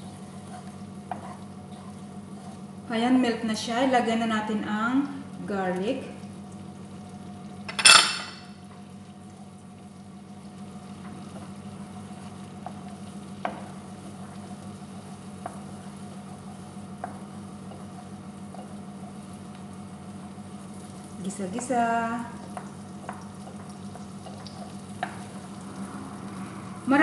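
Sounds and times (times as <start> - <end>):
garlic sizzling in butter: 10.5 - 27.0.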